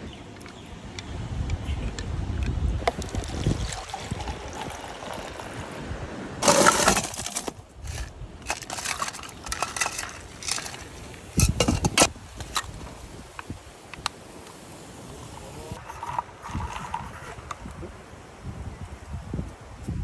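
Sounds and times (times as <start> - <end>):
coffee pouring into cup: 2.8 - 5.7
ice cubes clinking into cup: 6.4 - 11.5.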